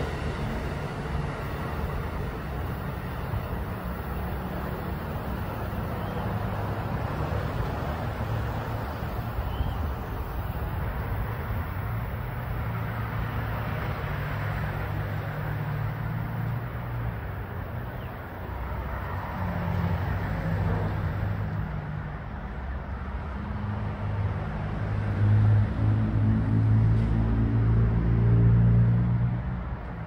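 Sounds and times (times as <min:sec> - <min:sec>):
distant train rumbling: 0:00.0 - 0:22.7.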